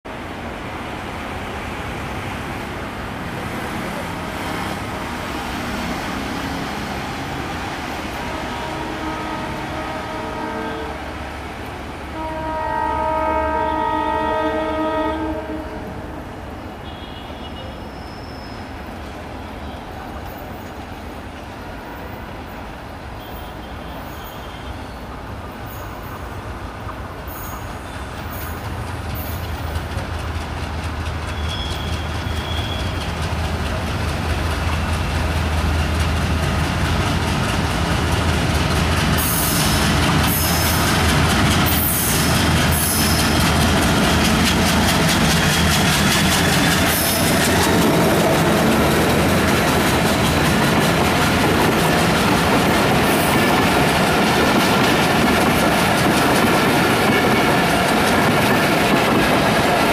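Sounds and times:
train low rumble: 0:00.1 - 0:16.8, 0:23.8 - 0:59.9
distant train horn: 0:08.0 - 0:11.2, 0:12.1 - 0:18.4, 0:31.3 - 0:33.0, 0:56.7 - 0:58.2.

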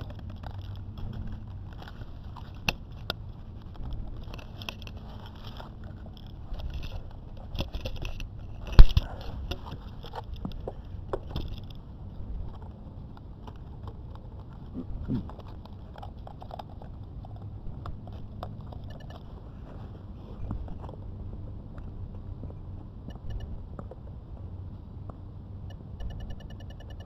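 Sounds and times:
camera handling rustles and clicks: 0:00.0 - 0:11.8.

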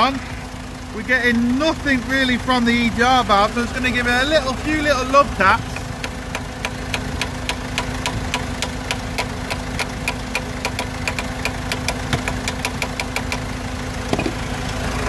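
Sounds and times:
engine running hum: 0:00.0 - 0:15.0
rapid light taps on metal: 0:05.8 - 0:13.4.

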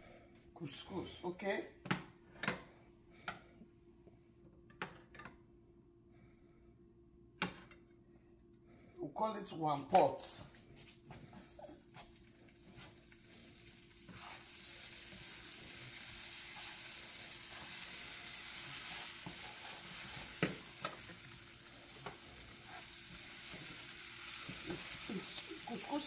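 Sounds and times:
food sizzling in frying pan: 0:11.3 - 0:26.0.

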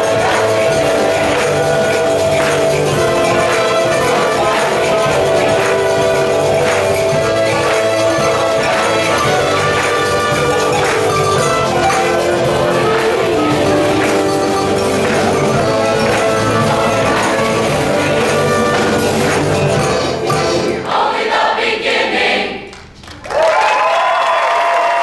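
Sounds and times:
audience applause and cheering: 0:00.0 - 0:20.5, 0:22.7 - 0:25.0
choir singing with accompaniment: 0:00.0 - 0:22.7.

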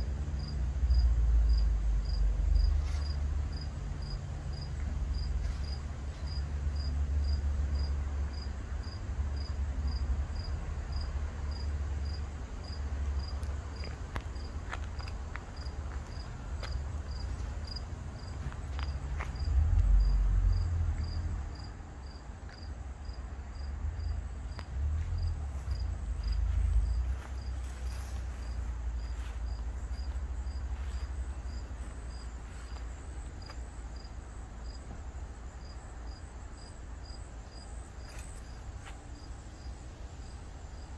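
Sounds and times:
cricket chirping: 0:00.4 - 0:40.9
low rumble: 0:16.4 - 0:22.2, 0:23.0 - 0:32.2.

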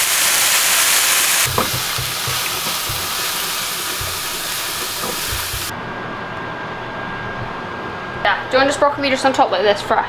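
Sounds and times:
mushrooms sizzling in a frying pan: 0:00.0 - 0:05.7.

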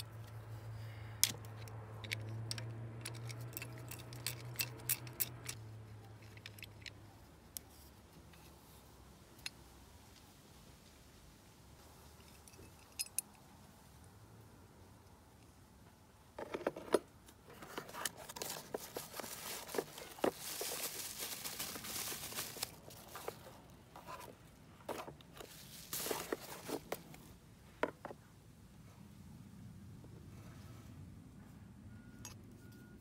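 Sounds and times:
bubble wrap and cardboard crinkling: 0:17.5 - 0:24.4, 0:25.0 - 0:27.3.

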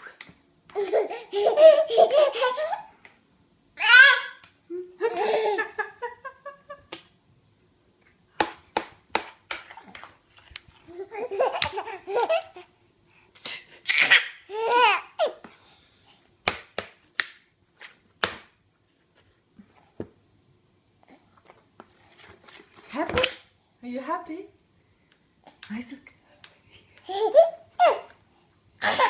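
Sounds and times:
baby laughing: 0:00.7 - 0:02.9, 0:03.8 - 0:06.8, 0:10.9 - 0:12.7, 0:13.8 - 0:15.4, 0:27.0 - 0:28.1.

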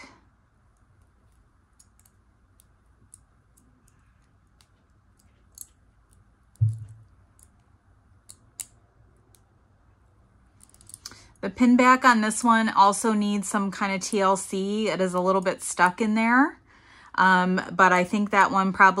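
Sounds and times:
metal brooch clicking: 0:00.8 - 0:09.5, 0:10.6 - 0:11.1
dull bump: 0:06.6 - 0:07.1.

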